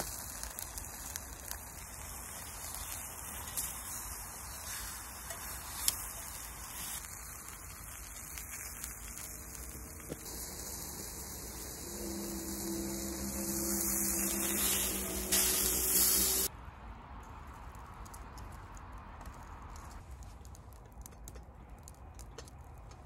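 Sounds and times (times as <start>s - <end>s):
meat sizzling in a frying pan: 0.0s - 16.5s
low steady hum: 8.6s - 16.5s.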